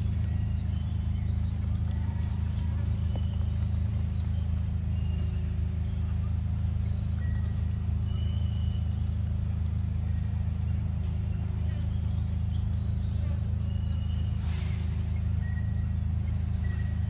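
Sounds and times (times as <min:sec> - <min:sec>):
birds chirping: 0:00.0 - 0:17.0
steady low rumble: 0:00.0 - 0:17.0.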